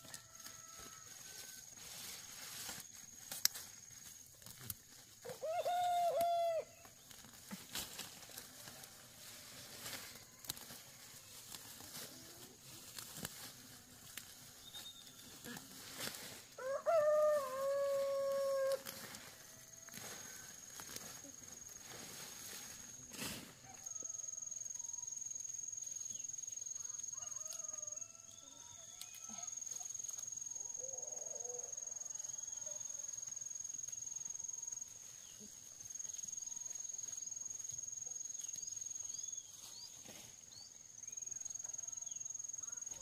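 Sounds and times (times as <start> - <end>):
rooster crowing: 0.0 - 1.8, 5.2 - 6.8, 16.5 - 20.5, 23.6 - 24.7, 26.8 - 29.6.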